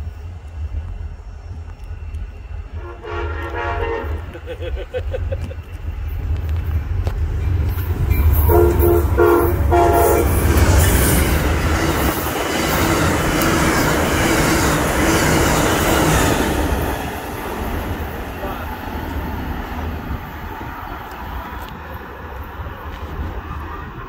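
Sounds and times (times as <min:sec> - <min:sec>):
locomotive rumble: 0:00.0 - 0:24.0
train wheels clacking on rails: 0:00.0 - 0:24.0
train horn blasts: 0:02.7 - 0:04.4, 0:08.4 - 0:10.5.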